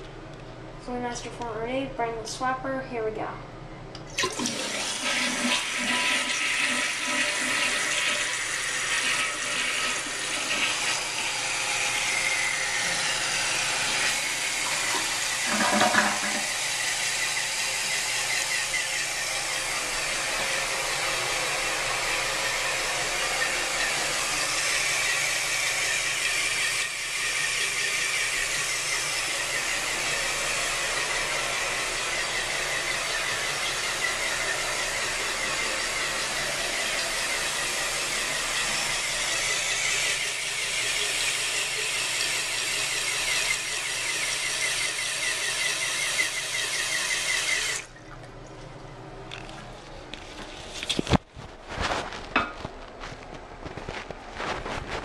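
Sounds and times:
water hissing into toilet tank: 0:04.1 - 0:48.0.

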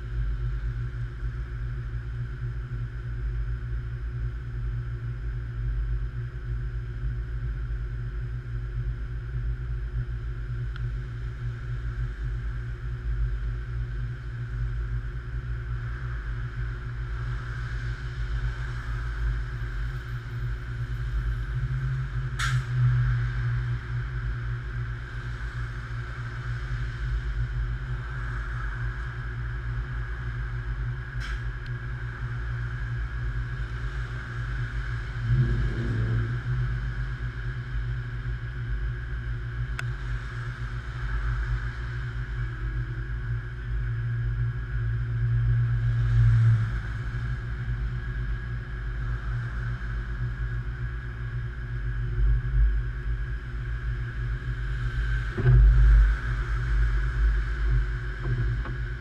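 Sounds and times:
road traffic rumble: 0:15.7 - 0:38.4.

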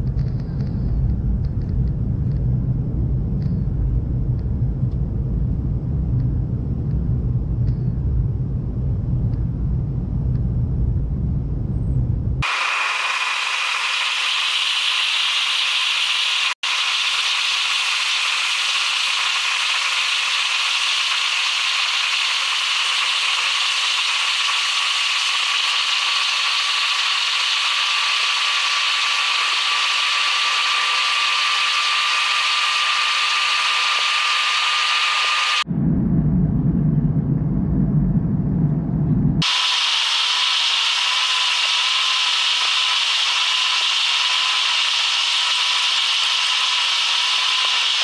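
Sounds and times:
airliner jet noise: 0:12.4 - 0:48.0.

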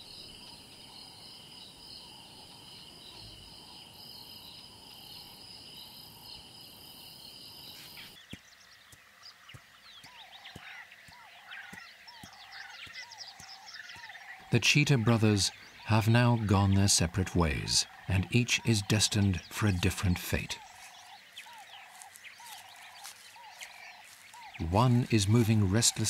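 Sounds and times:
insect trill: 0:00.0 - 0:08.8
bird chirps: 0:07.2 - 0:26.0.

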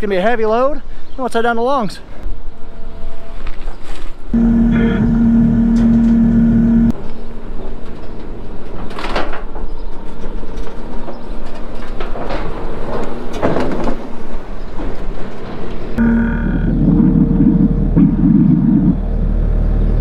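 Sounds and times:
skid loader engine running: 0:04.4 - 0:06.9, 0:16.0 - 0:20.0.

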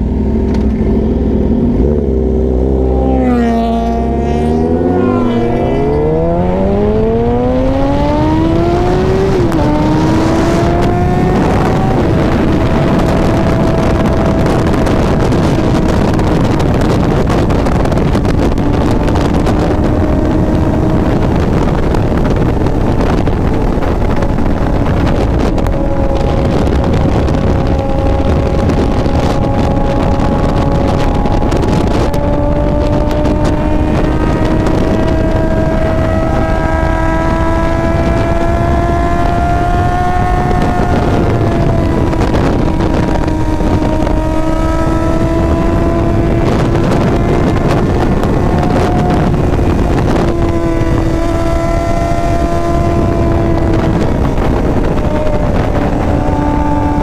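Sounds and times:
motorcycle engine accelerating: 0:00.0 - 0:57.0
wind noise on microphone: 0:00.0 - 0:57.0.

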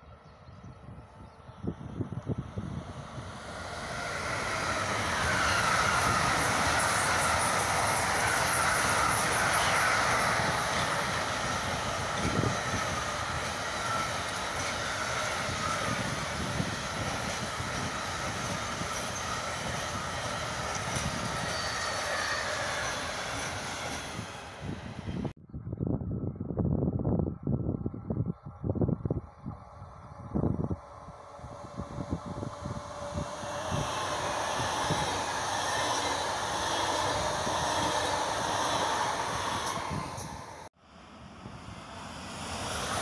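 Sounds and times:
train wheels rushing on rail: 0:01.1 - 0:25.3, 0:29.5 - 0:43.0
high wavering squeal: 0:03.2 - 0:24.4.

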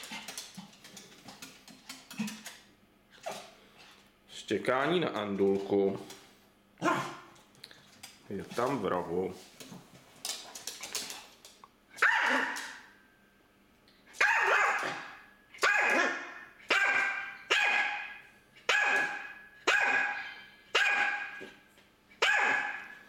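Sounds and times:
small dog barking: 0:06.8 - 0:07.3, 0:12.0 - 0:12.8, 0:14.2 - 0:21.4, 0:22.2 - 0:23.0.

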